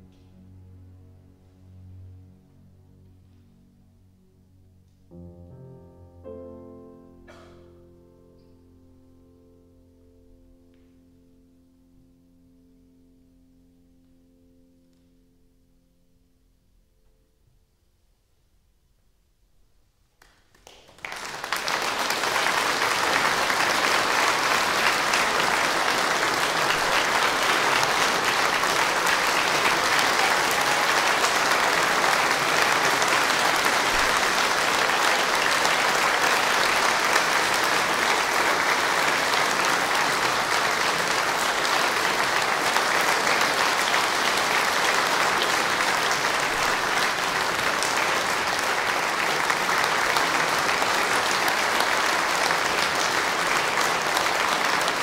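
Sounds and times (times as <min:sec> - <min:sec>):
audience applauding: 0:20.2 - 0:55.0.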